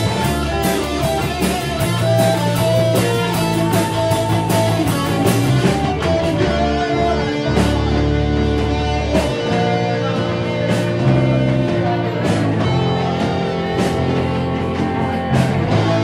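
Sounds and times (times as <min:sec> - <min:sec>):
electric guitar sustained chords: 0:00.0 - 0:16.0
rock band playing live: 0:00.0 - 0:16.0.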